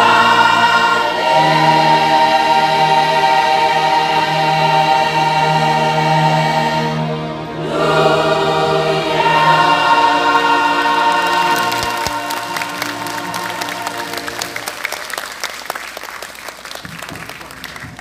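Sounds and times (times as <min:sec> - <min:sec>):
choir singing sustained chords: 0:00.0 - 0:14.8
applause: 0:11.2 - 0:18.0.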